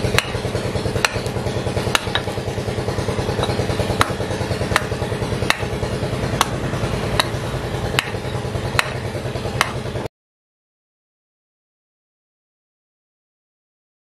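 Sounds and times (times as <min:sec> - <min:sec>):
hatchet chopping wood: 0:00.0 - 0:10.1
low engine-like hum: 0:00.0 - 0:10.1.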